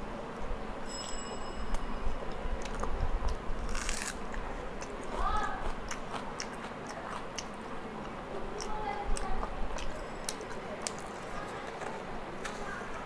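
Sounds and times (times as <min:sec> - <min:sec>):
person chewing: 0:02.1 - 0:12.6.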